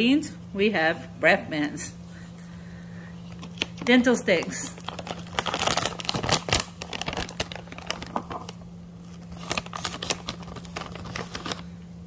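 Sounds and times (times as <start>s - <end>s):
plastic pouch crinkling: 3.2s - 11.7s.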